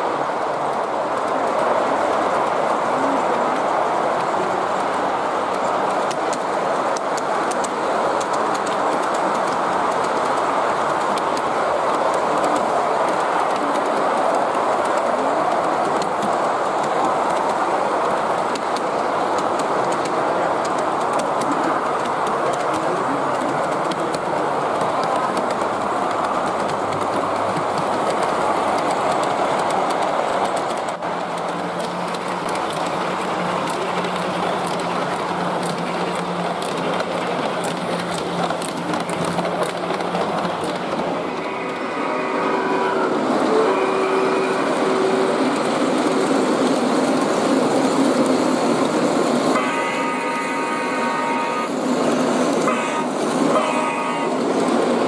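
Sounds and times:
model train wheels on rail: 0:00.0 - 0:55.0
electronic train horn: 0:41.4 - 0:45.4, 0:49.5 - 0:51.8, 0:52.6 - 0:54.4.

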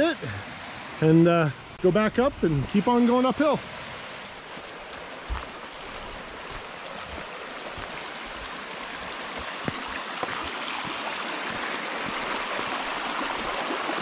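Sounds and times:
creek babbling over rocks: 0:04.2 - 0:14.0.

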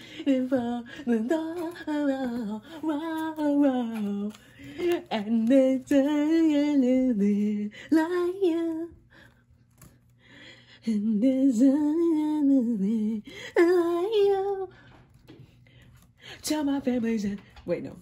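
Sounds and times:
person singing wordlessly: 0:00.0 - 0:09.0, 0:10.8 - 0:14.7.

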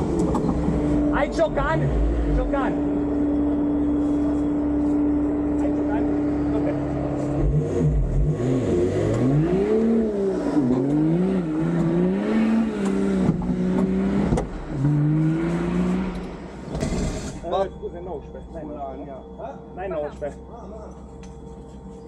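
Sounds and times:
vehicle engine revving: 0:00.0 - 0:17.6.

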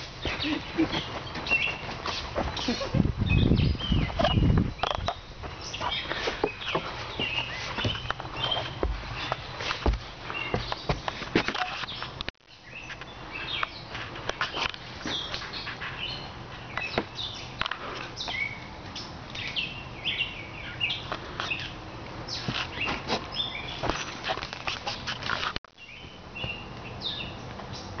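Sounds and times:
songbirds chirping and singing: 0:00.0 - 0:24.2, 0:24.8 - 0:28.0.

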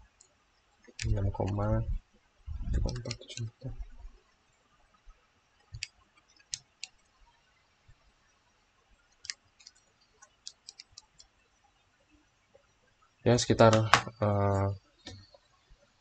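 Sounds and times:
keys tapping clicks: 0:02.7 - 0:03.6, 0:09.2 - 0:11.3.

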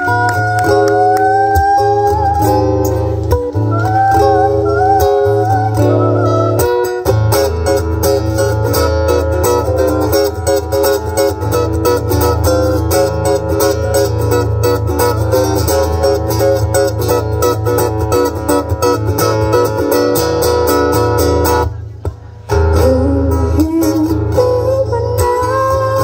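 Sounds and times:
person singing: 0:00.0 - 0:07.0, 0:22.7 - 0:26.0
acoustic guitar strummed: 0:00.0 - 0:26.0.

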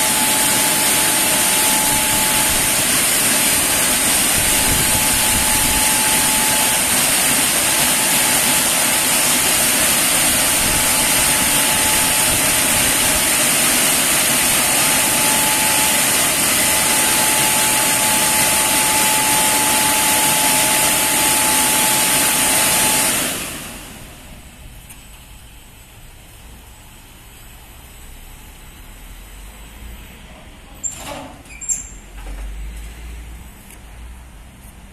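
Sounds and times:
air-dryer blowers rushing and whining: 0:00.0 - 0:24.6.

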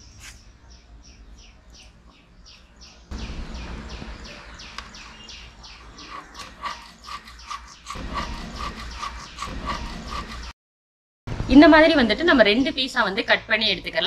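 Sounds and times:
low background rush: 0:00.0 - 0:08.8
bird calling with falling notes: 0:02.5 - 0:10.5.

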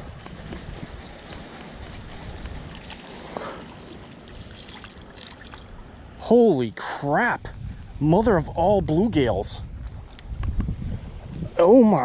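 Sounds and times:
wind buffeting microphone: 0:00.0 - 0:06.0, 0:07.4 - 0:12.0
choppy water washing: 0:00.0 - 0:06.2.

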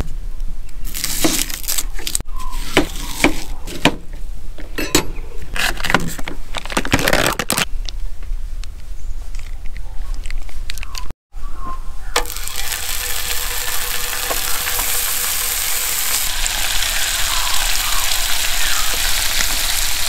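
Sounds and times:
utensils clinking: 0:04.6 - 0:06.2.

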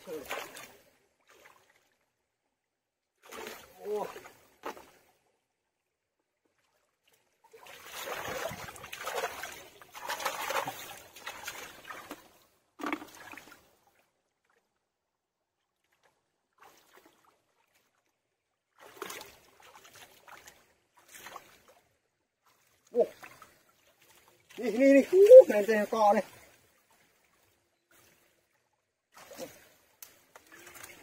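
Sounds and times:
sharp water splash: 0:03.2 - 0:04.9, 0:07.5 - 0:12.2, 0:18.8 - 0:21.7, 0:29.1 - 0:31.0
shallow water sloshing: 0:06.5 - 0:14.6.

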